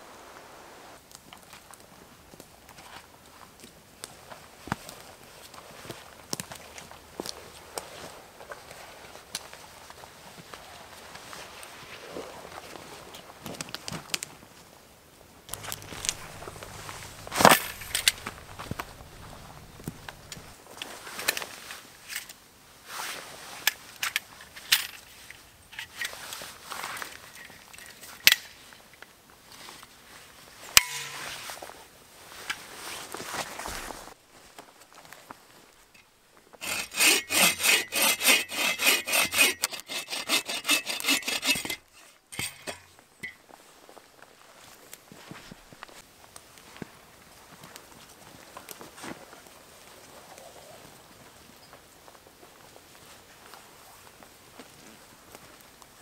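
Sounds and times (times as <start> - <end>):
bow saw metal clicks and rattles: 15.5 - 20.6, 30.8 - 31.4, 41.1 - 43.4
short rustles: 15.5 - 20.6.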